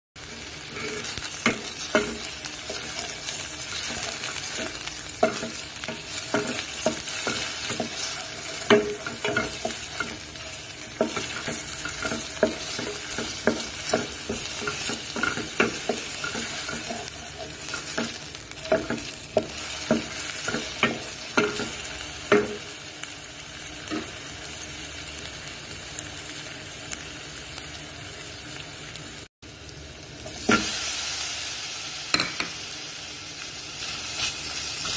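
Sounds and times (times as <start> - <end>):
onions sizzling in oil: 0.2 - 34.9
wooden spoon tapping a pot: 4.6 - 10.2.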